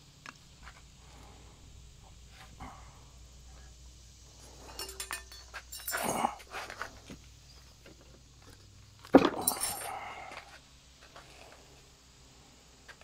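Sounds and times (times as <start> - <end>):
metal tools clinking: 4.5 - 6.9, 9.2 - 10.2.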